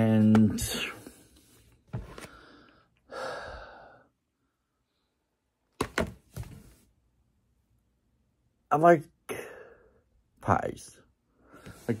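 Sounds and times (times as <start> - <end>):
man breathing: 2.1 - 5.3.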